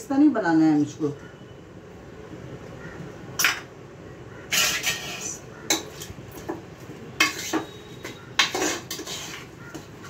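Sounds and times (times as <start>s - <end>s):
steel bowls and pot clinking: 4.5s - 6.6s, 7.2s - 10.0s.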